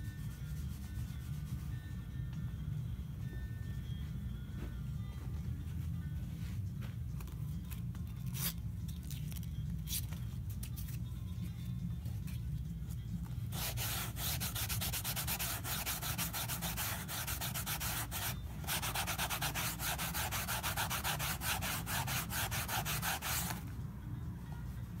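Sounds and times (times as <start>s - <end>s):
sanding pad scraping felt: 13.5s - 23.6s.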